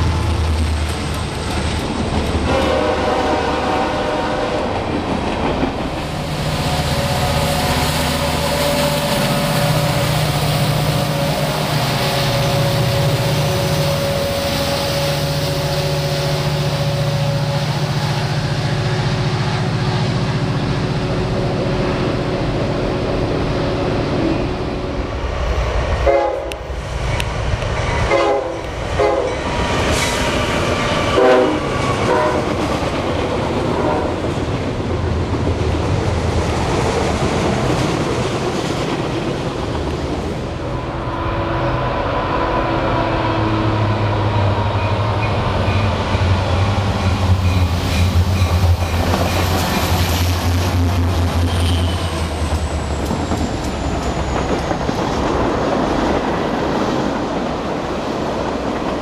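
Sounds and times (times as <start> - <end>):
freight cars rumbling on rails: 0.0 - 59.0
locomotive air horn: 2.5 - 4.7, 6.6 - 18.3, 26.0 - 26.7, 28.1 - 29.4, 31.1 - 32.6, 33.8 - 34.2, 51.4 - 52.5.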